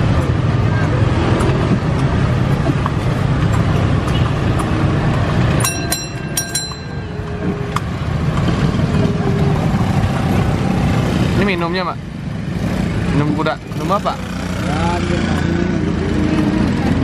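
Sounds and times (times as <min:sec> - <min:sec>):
motorbikes and cars running: 0:00.0 - 0:17.0
street traffic rumble: 0:00.0 - 0:17.0
bell ringing: 0:05.6 - 0:07.6.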